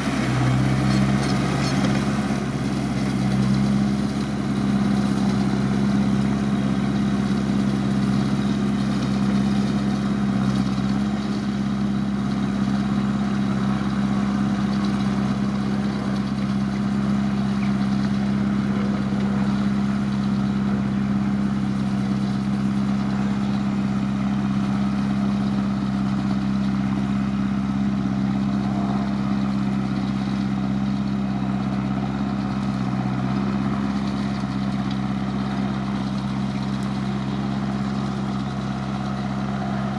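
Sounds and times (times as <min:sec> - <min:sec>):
tractor engine droning: 0:00.0 - 0:39.9.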